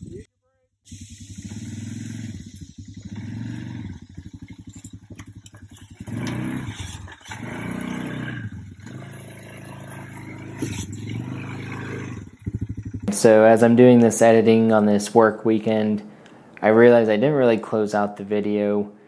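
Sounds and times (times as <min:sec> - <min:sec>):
wheels on wooden planks: 0:00.9 - 0:14.8
atv engine running: 0:00.9 - 0:16.0.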